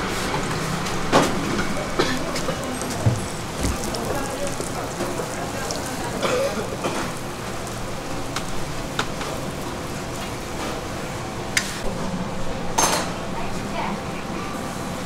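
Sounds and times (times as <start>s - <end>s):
dough sizzling in hot oil: 0.0s - 11.6s.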